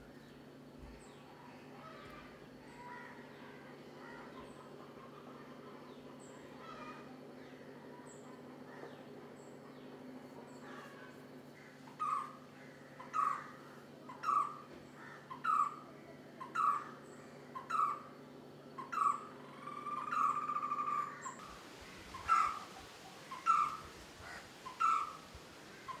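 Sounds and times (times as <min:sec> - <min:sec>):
bird hollow calls: 0:18.8 - 0:26.0
bird rolling call: 0:18.9 - 0:26.0.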